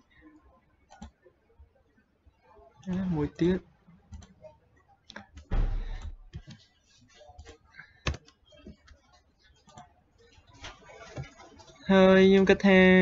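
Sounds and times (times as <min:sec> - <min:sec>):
keyboard typing: 0:00.9 - 0:01.2, 0:07.4 - 0:11.7.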